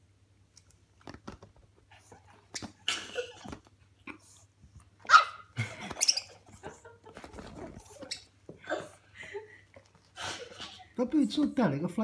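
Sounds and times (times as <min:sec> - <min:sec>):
dog barking: 0:05.1 - 0:05.5.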